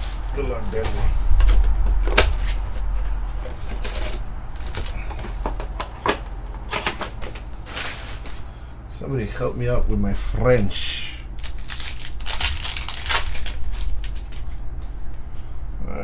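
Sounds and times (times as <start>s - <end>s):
foil packs rustling: 0.0s - 8.5s, 11.3s - 14.6s.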